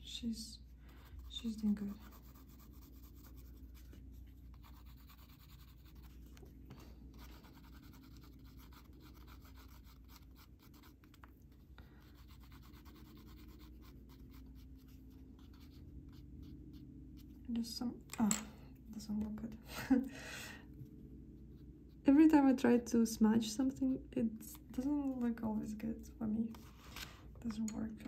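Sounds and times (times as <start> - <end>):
pencil scratching on paper: 1.1 - 6.5, 7.1 - 11.3, 12.0 - 17.4.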